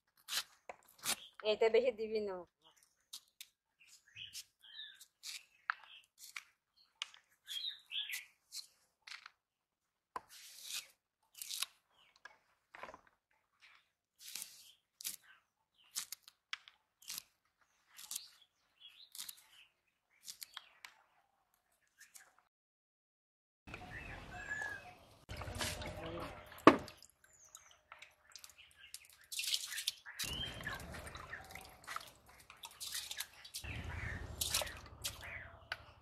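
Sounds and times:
blade cutting and scraping fruit: 0:00.0 - 0:01.4, 0:03.1 - 0:06.6, 0:07.2 - 0:08.8, 0:10.2 - 0:11.9, 0:13.7 - 0:21.1, 0:28.5 - 0:36.0
faint bird chirps: 0:23.7 - 0:25.2.

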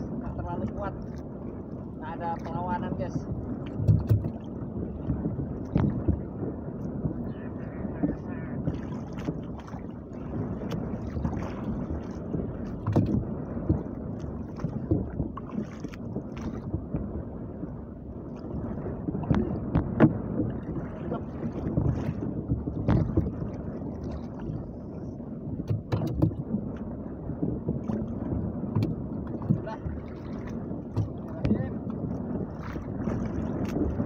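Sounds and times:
water slapping against boat hull: 0:00.0 - 0:34.0
wind on microphone: 0:00.0 - 0:34.0
sharp knocks: 0:25.6 - 0:26.4.

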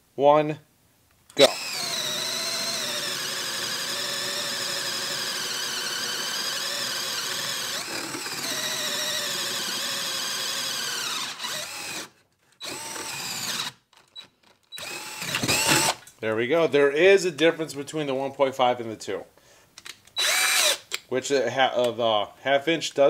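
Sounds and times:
cordless drill whining: 0:01.3 - 0:16.1, 0:20.1 - 0:21.0.

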